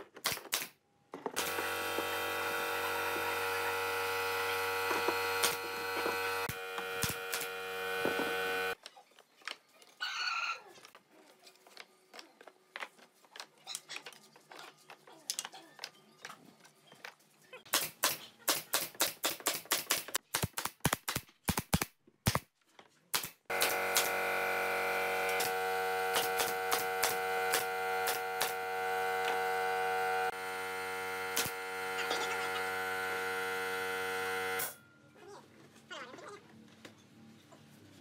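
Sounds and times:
pneumatic nailer firing: 0.1s - 0.8s, 1.4s - 8.8s, 23.1s - 29.7s, 31.2s - 34.8s
steady machine hum: 1.4s - 8.8s, 23.5s - 34.8s.

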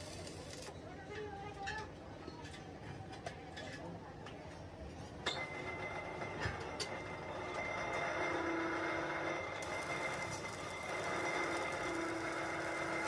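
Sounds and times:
workshop noise: 0.0s - 13.0s
high machine whine: 7.1s - 13.0s.

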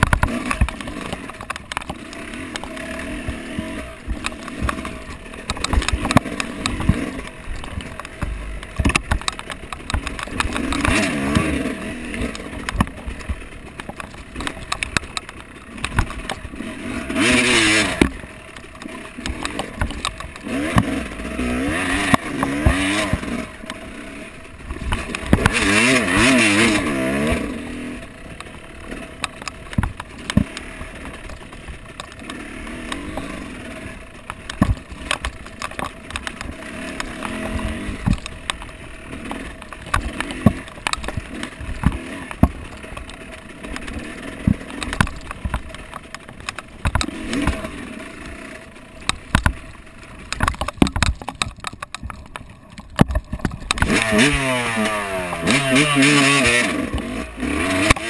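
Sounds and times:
off-road vehicle engine revving: 0.0s - 8.1s, 8.7s - 52.0s, 53.0s - 58.0s
knocks and rattles over rough ground: 0.0s - 58.0s.

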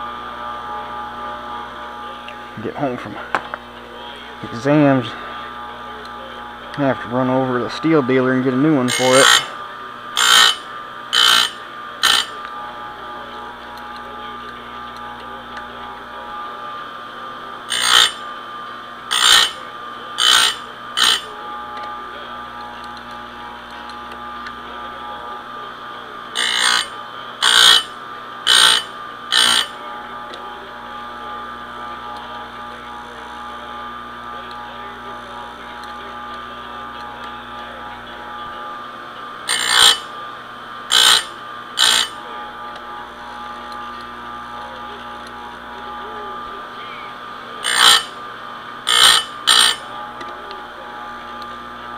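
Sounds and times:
sharpener motor running: 0.0s - 51.9s
grinding wheel on chain: 8.9s - 9.5s, 10.2s - 12.3s, 17.7s - 18.2s, 19.1s - 19.6s, 20.2s - 21.3s, 26.4s - 27.9s, 28.5s - 29.7s, 39.5s - 40.1s, 40.9s - 42.2s, 47.6s - 48.1s, 48.9s - 49.8s.

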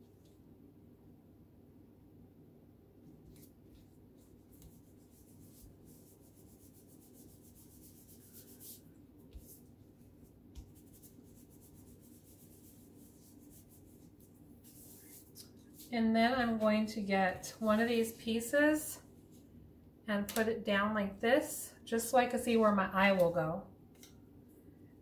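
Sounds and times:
hands rubbing paper: 3.3s - 16.6s.

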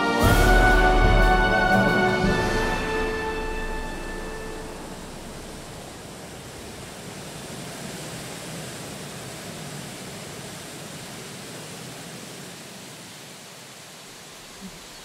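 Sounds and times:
held music notes: 0.0s - 5.9s
waterfall rushing: 0.0s - 15.0s.

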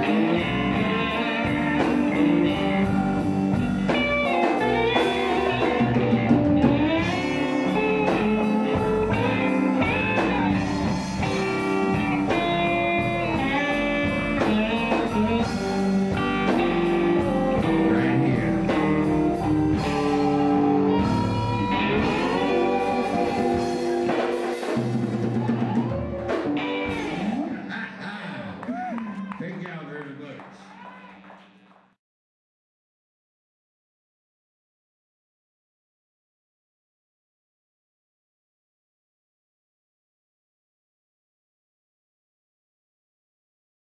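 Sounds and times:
live blues band playing: 0.0s - 27.8s
electric guitar with bent notes: 0.0s - 28.6s.

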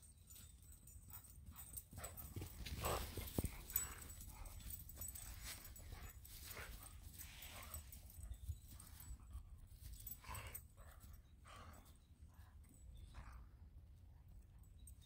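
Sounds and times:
dog breathy puffs: 1.5s - 12.1s.

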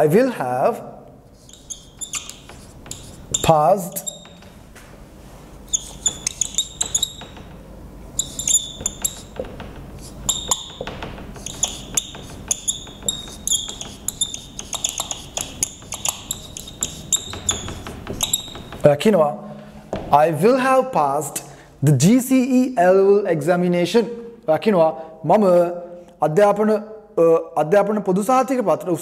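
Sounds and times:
marker squeaking on whiteboard: 1.3s - 4.7s, 5.5s - 18.9s.

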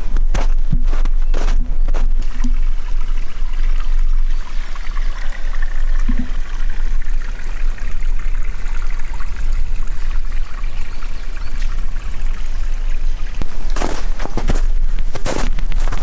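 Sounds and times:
water trickling over stones: 0.0s - 16.0s
footsteps crunching in snow: 0.3s - 2.4s, 13.6s - 16.0s.

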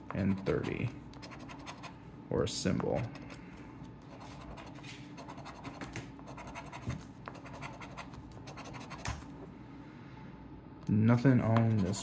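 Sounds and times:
coin scratching lottery ticket: 0.2s - 1.9s, 4.1s - 9.0s.

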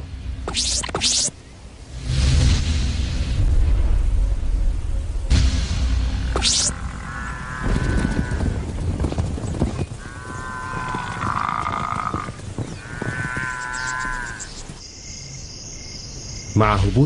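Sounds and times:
crickets chirping: 6.4s - 17.0s
drawn-out animal calls: 6.6s - 14.8s
hooves drumming on dry ground: 6.7s - 14.8s.

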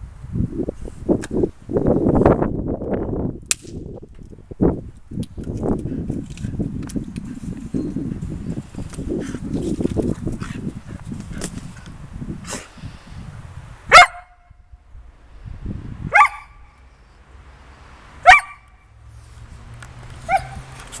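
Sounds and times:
dog barking: 13.9s - 14.4s, 16.1s - 16.6s, 18.2s - 18.7s, 20.3s - 20.6s.

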